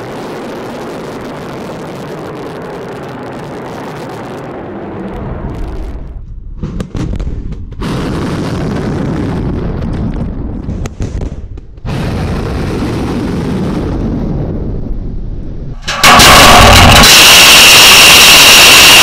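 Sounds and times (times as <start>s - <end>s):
rocket motor blast and rumble: 0.0s - 19.0s.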